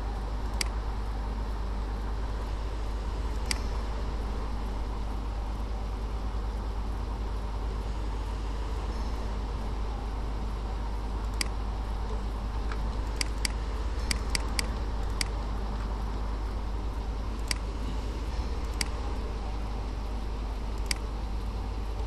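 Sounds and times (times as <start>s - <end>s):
low electrical hum and hiss: 0.0s - 22.0s
computer mouse clicking: 0.5s - 0.8s, 3.3s - 3.8s, 11.2s - 15.9s, 17.4s - 17.8s, 18.6s - 19.2s, 20.8s - 21.1s.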